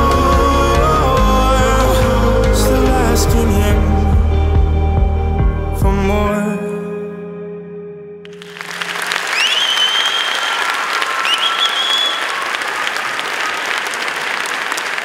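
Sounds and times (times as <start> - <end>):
audience applauding: 8.3 - 15.0
high-pitched cheers: 8.3 - 15.0.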